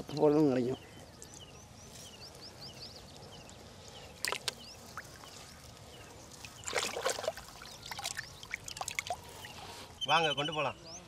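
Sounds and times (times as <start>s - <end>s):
pond water splashing: 4.2s - 9.9s.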